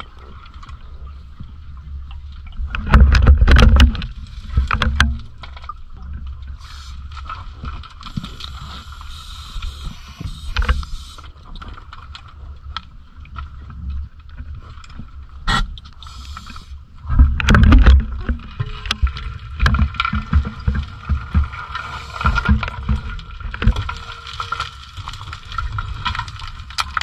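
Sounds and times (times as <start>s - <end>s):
muffled underwater rumble: 0.0s - 27.0s
small clicks and knocks: 2.6s - 6.2s, 17.1s - 27.0s.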